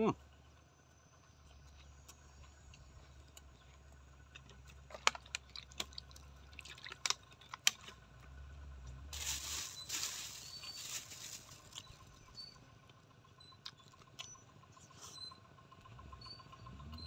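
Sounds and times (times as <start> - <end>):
mouth chewing food: 1.4 - 8.3.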